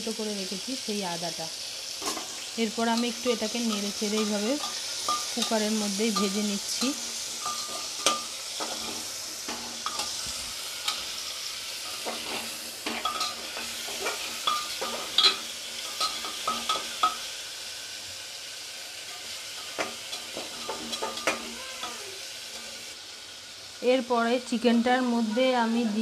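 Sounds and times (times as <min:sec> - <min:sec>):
chicken sizzling in hot oil: 0:00.0 - 0:26.0
stirring knocks and scrapes on pot: 0:03.7 - 0:11.0, 0:11.9 - 0:17.2, 0:19.1 - 0:21.5.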